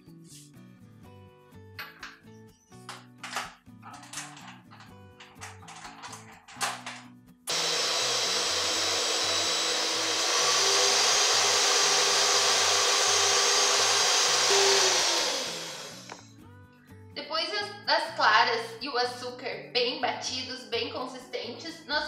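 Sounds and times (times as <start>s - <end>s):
stand mixer motor whirring: 7.5s - 16.2s.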